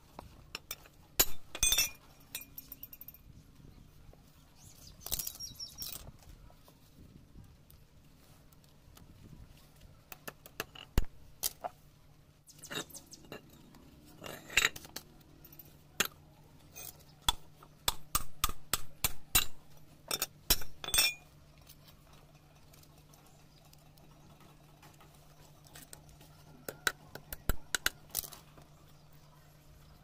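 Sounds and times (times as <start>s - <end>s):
metallic clicks and clinks: 0.5s - 3.3s, 12.6s - 17.4s, 19.3s - 26.0s.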